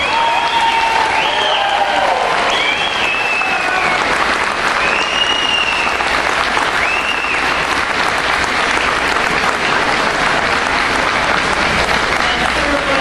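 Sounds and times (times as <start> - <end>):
high whistles: 0.0 - 3.8, 4.8 - 6.1, 6.7 - 7.6
audience applauding: 0.0 - 13.0.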